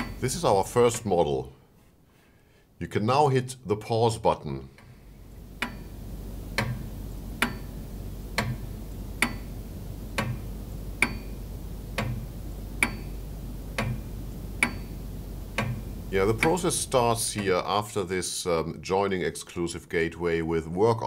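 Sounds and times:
faint low hum: 0.0 - 21.0
clock ticking: 5.6 - 17.7.

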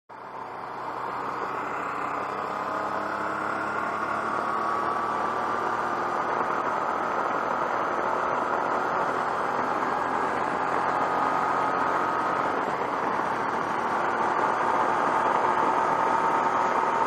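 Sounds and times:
motorcycle engine drone: 0.1 - 17.0.

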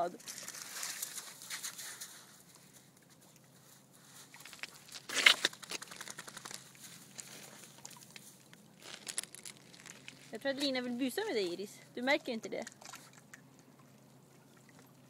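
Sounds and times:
dog paws on wet gravel: 0.2 - 11.7.

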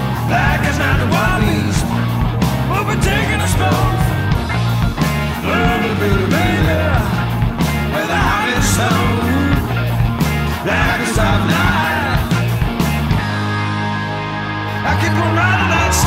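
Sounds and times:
drums with cymbal hits: 0.0 - 13.5
bass guitar: 0.0 - 16.0
electric guitar: 0.0 - 16.0.

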